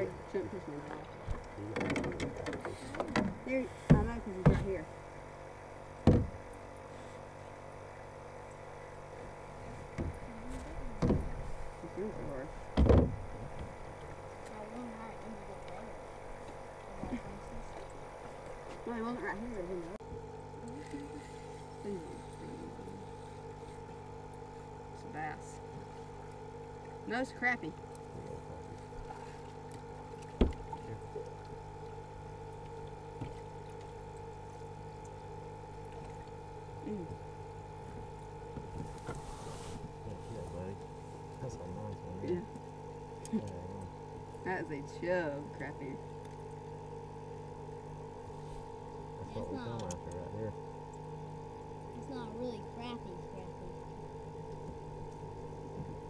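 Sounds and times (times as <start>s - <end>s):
steady low hum: 0.0s - 56.0s
knocks on a canoe: 1.3s - 4.8s, 6.0s - 6.4s, 11.0s - 11.4s, 12.7s - 13.8s, 30.3s - 30.7s.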